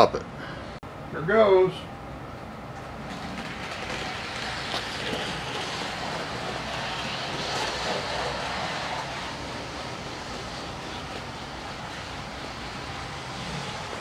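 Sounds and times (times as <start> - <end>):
model train motor whirring: 3.1 - 14.0.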